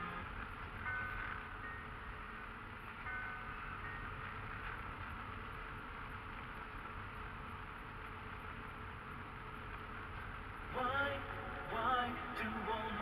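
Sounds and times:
car driving on gravel road: 0:00.0 - 0:13.0
music with singing: 0:10.7 - 0:13.0.

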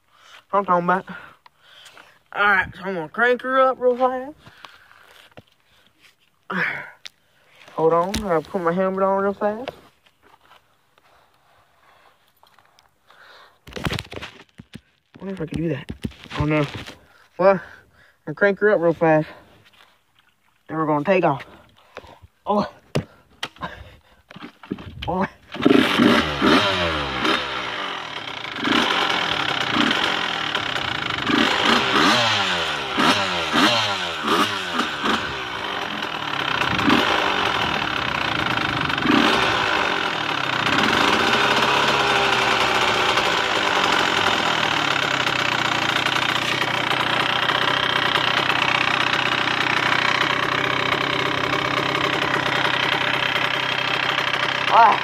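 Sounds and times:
dirt bike engine revving and idling: 0:07.7 - 0:09.8, 0:24.6 - 0:55.0.

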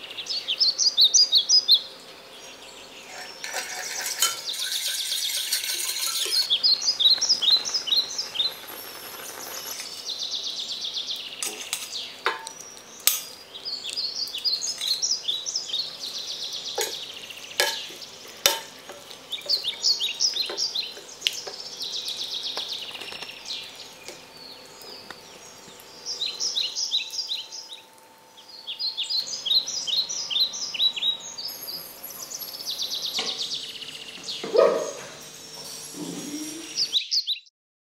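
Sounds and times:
birds chirping: 0:00.0 - 0:37.5
whisk clinking against metal pan: 0:03.1 - 0:06.7, 0:17.6 - 0:19.6.

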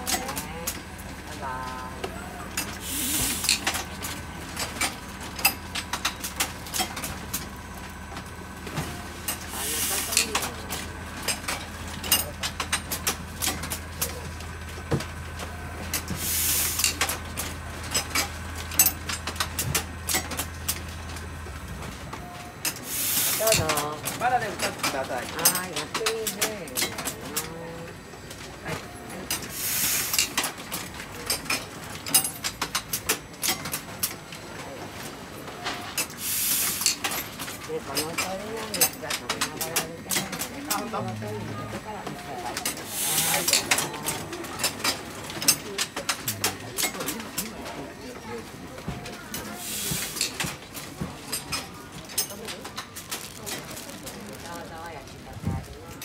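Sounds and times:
machine parts clicking and clacking: 0:02.0 - 0:08.3, 0:09.2 - 0:15.2, 0:15.8 - 0:21.3, 0:21.9 - 0:27.6, 0:28.2 - 0:41.1, 0:42.0 - 0:48.2, 0:49.0 - 0:56.0
hiss burst: 0:22.9 - 0:23.4
machine humming: 0:39.8 - 0:47.7.

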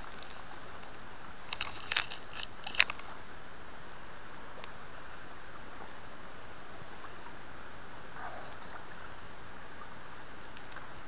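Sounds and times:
flowing stream hiss: 0:00.0 - 0:11.0
fishing gear handling clicks: 0:01.5 - 0:03.0.

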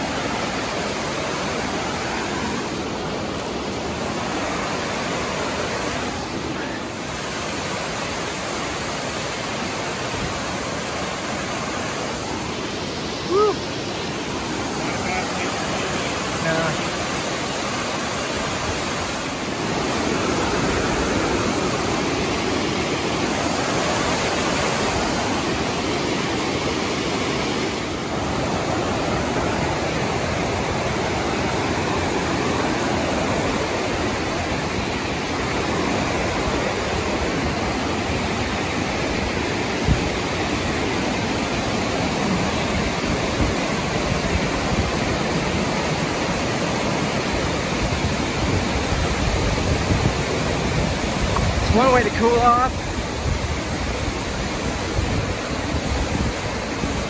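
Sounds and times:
waterfall roaring: 0:00.0 - 0:57.0.

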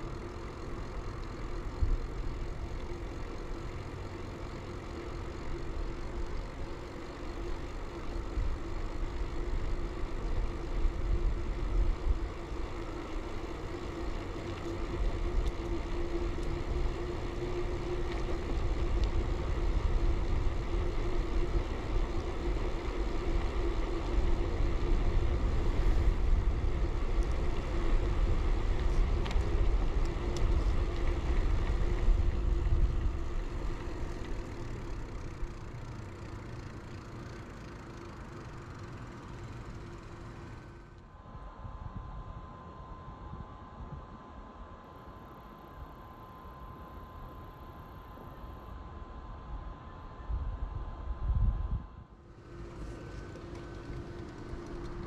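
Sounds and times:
bicycle tyre road noise: 0:00.0 - 0:41.5, 0:43.8 - 0:55.0
wind rumble on microphone: 0:07.8 - 0:35.5, 0:41.2 - 0:44.8, 0:48.8 - 0:55.0.

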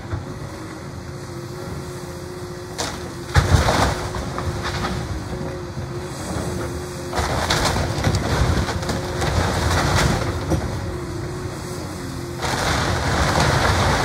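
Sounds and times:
excavator diesel engine running: 0:00.0 - 0:14.0
wood splintering and cracking: 0:02.8 - 0:05.2, 0:07.1 - 0:10.9, 0:12.4 - 0:14.0
debris falling: 0:12.4 - 0:14.0.

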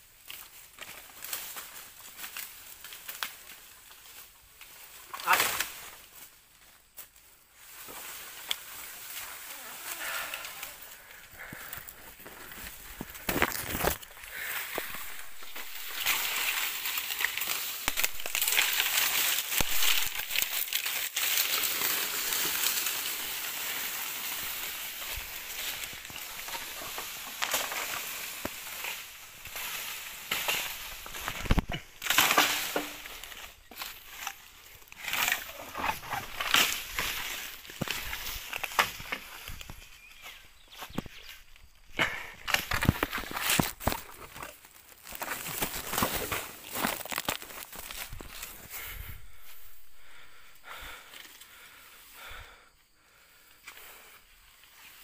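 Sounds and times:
leaves crunching underfoot: 0:00.1 - 0:51.0.

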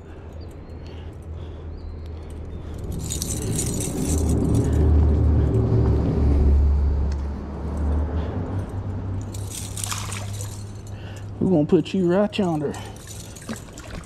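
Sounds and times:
vehicle rumbling over bridge: 0:00.0 - 0:14.0
light metallic clinking: 0:02.2 - 0:05.6, 0:08.6 - 0:11.4, 0:12.4 - 0:14.0.

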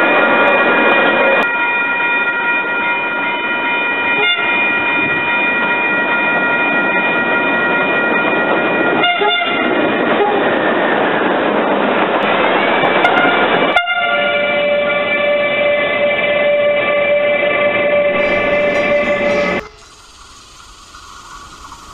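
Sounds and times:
train running noise: 0:00.0 - 0:21.9
locomotive horn blasts: 0:04.2 - 0:04.6, 0:09.0 - 0:10.5, 0:12.3 - 0:20.0
lower locomotive horn: 0:04.2 - 0:04.6, 0:09.0 - 0:10.6, 0:12.2 - 0:20.0.

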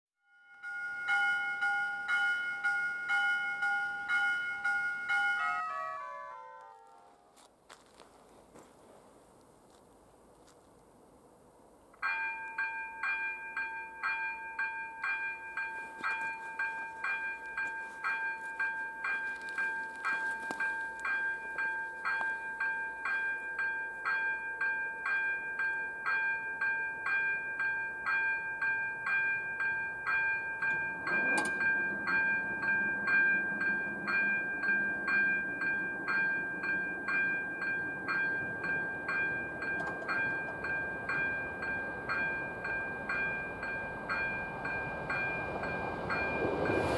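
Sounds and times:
level crossing bell ringing: 0:00.3 - 0:07.3, 0:12.0 - 0:46.6
low hum of lowering barrier: 0:30.0 - 0:46.9.

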